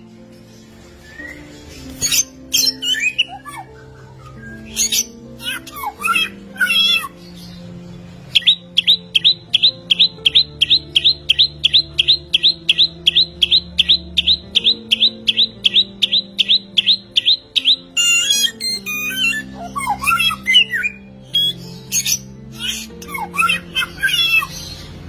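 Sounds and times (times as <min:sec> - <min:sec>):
soft background music: 0:00.0 - 0:25.0
songbird whistling: 0:00.8 - 0:07.2, 0:08.3 - 0:24.8
bird chattering: 0:08.3 - 0:24.5.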